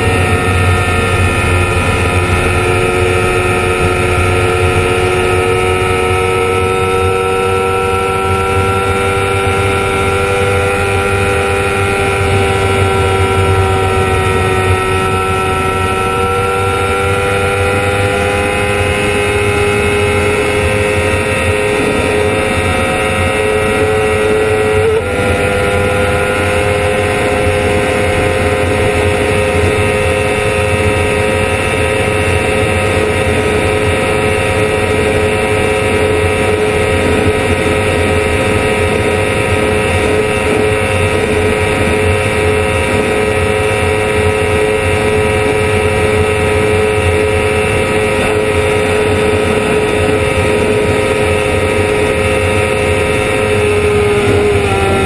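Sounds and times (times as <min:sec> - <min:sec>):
wind rush: 0:00.0 - 0:07.2
motorcycle engine revving hard: 0:00.0 - 0:55.0.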